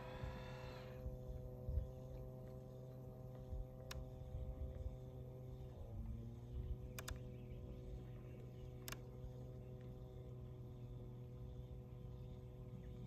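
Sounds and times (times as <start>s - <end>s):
model boat engine hum: 0.0s - 13.0s
sharp click: 6.9s - 7.3s, 8.8s - 9.1s.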